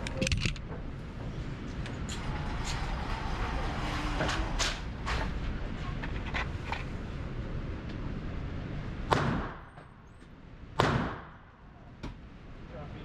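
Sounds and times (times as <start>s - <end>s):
low rumble: 0.8s - 9.1s
gunshots with echo: 9.1s - 9.8s, 10.8s - 11.4s.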